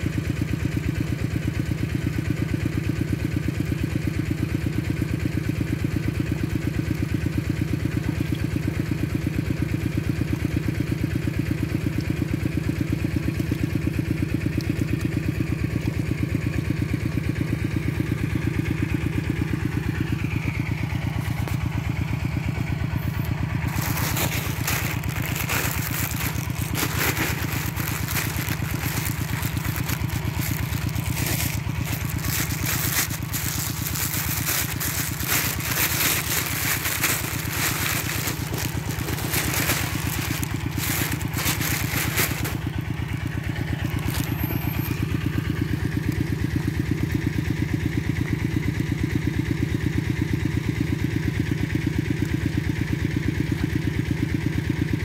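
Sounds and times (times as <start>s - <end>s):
small engine running: 0.0s - 55.0s
crackling scraping noise: 23.6s - 42.8s, 43.8s - 44.4s.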